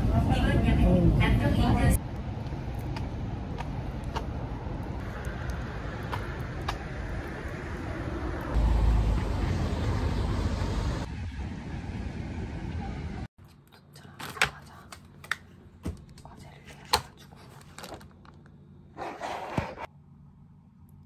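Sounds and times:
low traffic rumble: 0.0s - 13.3s.

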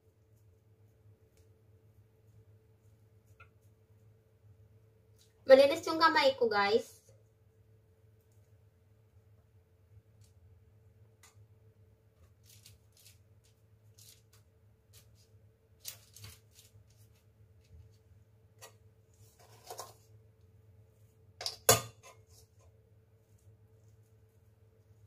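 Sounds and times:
hands tapping and shaping dough: 0.0s - 4.3s.

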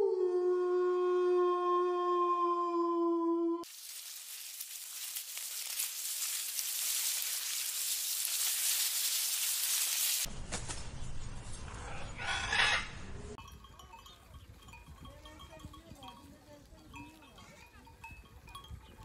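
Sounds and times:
steady high hiss: 3.6s - 10.3s
sheep and goats flock sounds: 13.4s - 19.0s.

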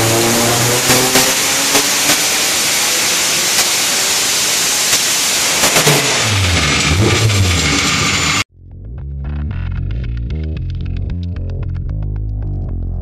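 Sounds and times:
engine roaring at full throttle: 0.0s - 8.5s
wheels spinning on rollers: 1.7s - 8.5s.

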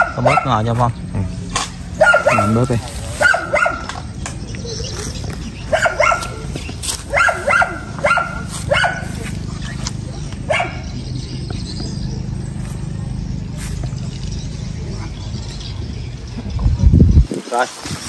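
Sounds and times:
dog barking: 0.0s - 0.7s, 2.0s - 4.0s, 5.7s - 9.4s, 10.4s - 11.0s.

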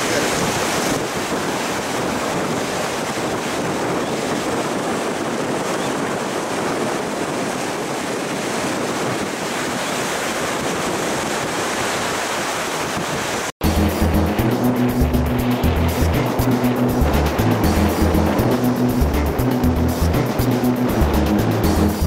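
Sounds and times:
wind buffeting microphone: 0.0s - 13.5s
ocean surf washing on beach: 0.0s - 22.0s.

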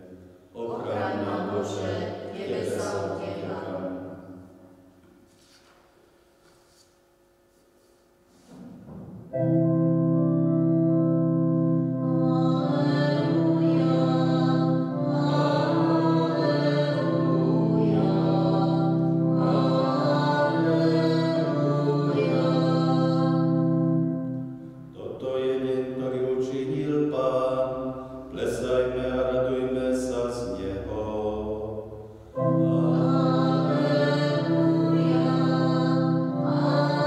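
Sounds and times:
church organ chords: 0.0s - 4.9s, 8.8s - 37.0s
person singing a chant: 0.6s - 3.9s, 11.8s - 24.3s, 24.9s - 37.0s.

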